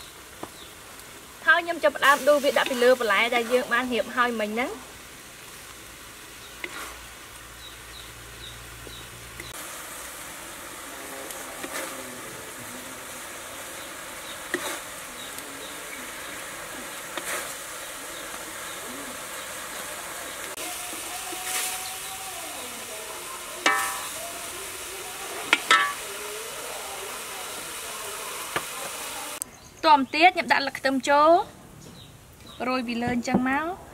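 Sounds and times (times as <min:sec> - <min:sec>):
light sizzle: 0:00.0 - 0:33.9
spatula scraping in a wok: 0:06.5 - 0:07.2, 0:10.0 - 0:29.4
spatula clanging on pan: 0:23.6 - 0:24.2, 0:25.5 - 0:26.1.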